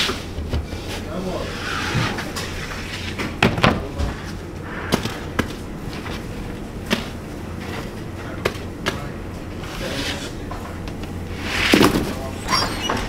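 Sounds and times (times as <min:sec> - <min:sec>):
low hum: 0:04.4 - 0:08.2.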